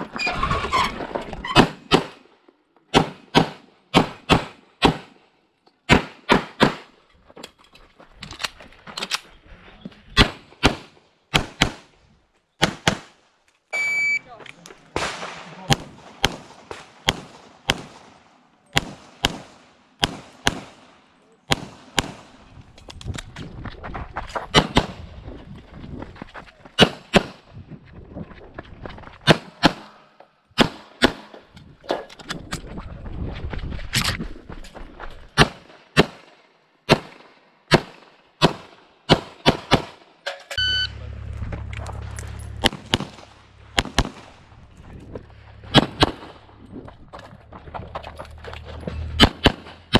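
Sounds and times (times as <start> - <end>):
electronic timer beep: 13.8 - 14.2, 40.6 - 41.0
pistol shots: 14.9 - 22.4, 30.6 - 31.3, 36.9 - 40.1, 42.6 - 44.4, 45.7 - 46.4, 49.2 - 49.9.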